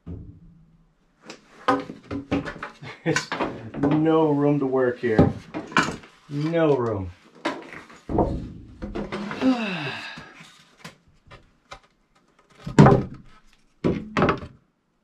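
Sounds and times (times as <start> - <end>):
loud solid thunk: 8.1 - 9.3
man groaning with effort: 9.1 - 10.4.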